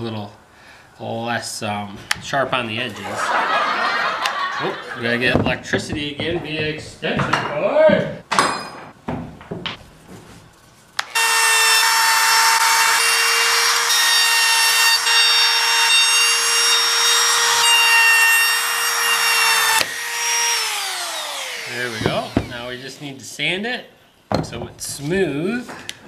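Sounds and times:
trim router whining: 11.0s - 22.8s
router bit cutting wood: 11.0s - 23.0s.

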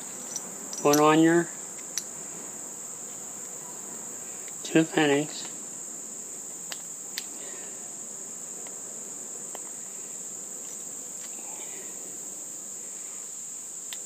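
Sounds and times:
metal fitting parts clicking: 0.2s - 1.1s.

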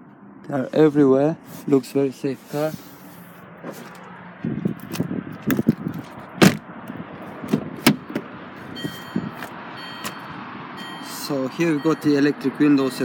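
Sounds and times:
clicks and knocks at car door: 4.9s - 6.6s
faint short high beeps: 8.8s - 11.2s.

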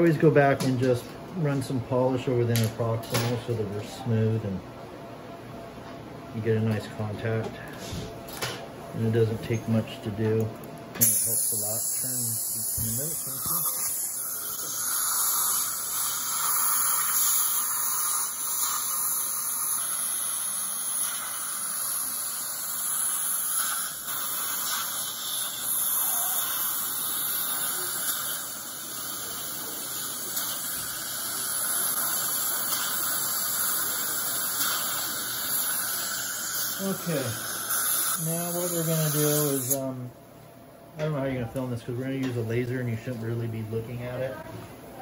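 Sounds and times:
dental handpiece and suction hissing: 11.0s - 39.9s.

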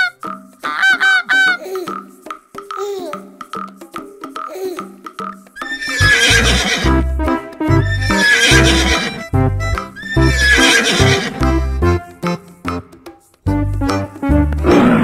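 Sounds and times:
children's music with bass beat: 0.0s - 15.0s
horse whinny: 5.6s - 7.0s, 7.8s - 9.3s, 10.0s - 11.5s.

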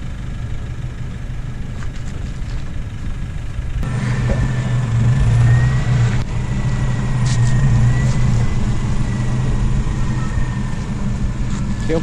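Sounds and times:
engine running at low revs: 0.0s - 12.0s
thin high whine: 3.8s - 12.0s.

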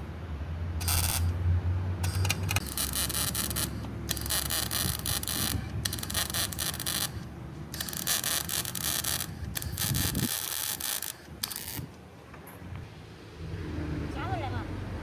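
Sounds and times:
arc welding crackling: 0.8s - 1.4s, 2.0s - 12.0s.

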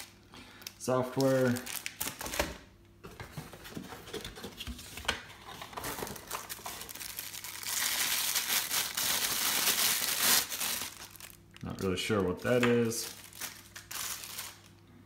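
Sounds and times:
plastic bag crinkling: 0.0s - 2.6s, 5.6s - 14.8s
packaging rustling and knocks: 1.8s - 11.2s.

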